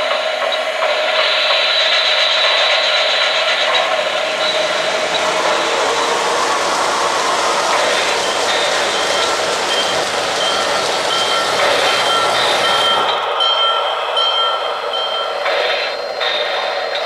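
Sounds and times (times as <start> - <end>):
steam hiss: 0.0 - 17.0
bell ringing: 8.5 - 16.4.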